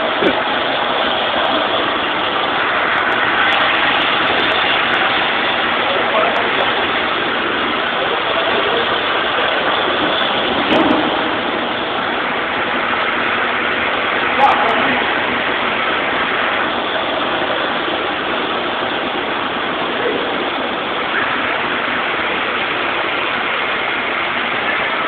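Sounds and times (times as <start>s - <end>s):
kitchen machinery din: 8.0s - 12.3s
brief clatter: 10.7s - 11.3s.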